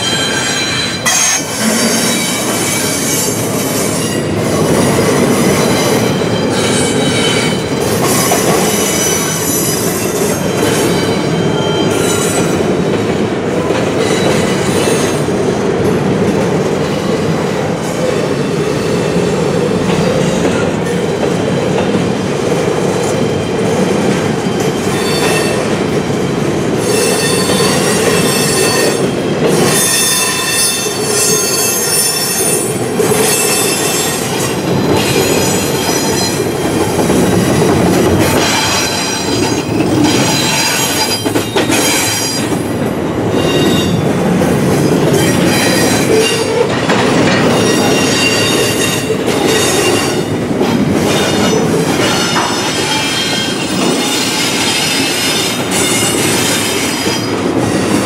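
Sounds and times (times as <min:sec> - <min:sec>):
steel wheels squealing: 0:00.0 - 0:12.6, 0:26.8 - 0:36.6, 0:37.2 - 0:42.6, 0:43.3 - 0:44.1, 0:45.0 - 0:50.3, 0:51.0 - 0:58.0
train cars rumbling past: 0:00.0 - 0:58.0.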